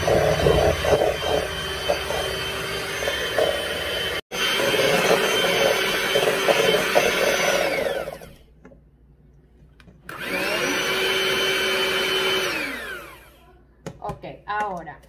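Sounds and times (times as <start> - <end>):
electric mixer whining: 0.0 - 8.5, 10.1 - 13.4.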